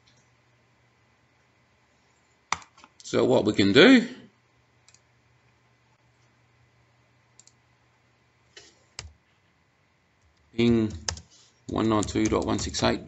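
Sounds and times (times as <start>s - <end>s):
computer mouse clicks: 2.5s - 2.9s, 4.8s - 5.1s, 7.4s - 7.6s, 8.6s - 9.2s, 10.2s - 12.8s.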